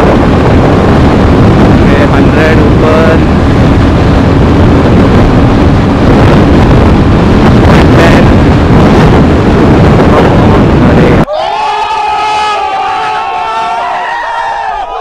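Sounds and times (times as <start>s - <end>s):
wind buffeting microphone: 0.0s - 11.3s.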